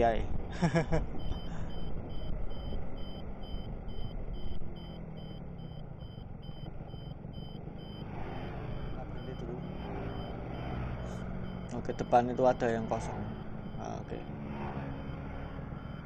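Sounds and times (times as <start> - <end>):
short electronic beep: 8.7 - 16.0.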